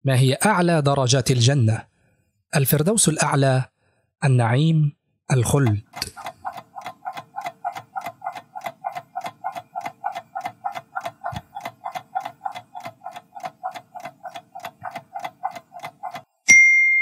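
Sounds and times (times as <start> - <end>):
countdown timer ticking: 5.6 - 16.4.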